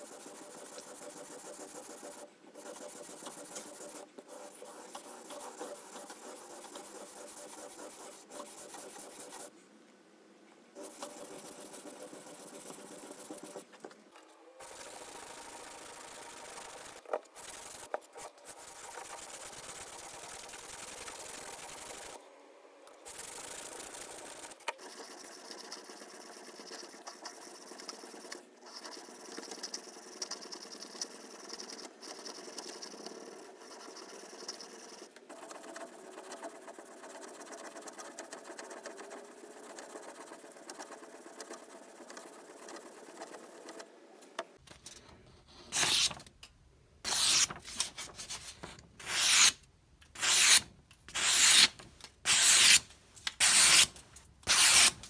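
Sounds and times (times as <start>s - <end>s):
blade slicing paper: 45.7s - 46.2s, 47.1s - 49.6s, 50.2s - 55.0s
knife rubbing on sharpening stone: 47.1s - 47.5s, 49.0s - 49.5s, 50.2s - 50.6s, 51.2s - 51.7s, 52.3s - 52.8s, 53.4s - 53.9s, 54.5s - 55.0s.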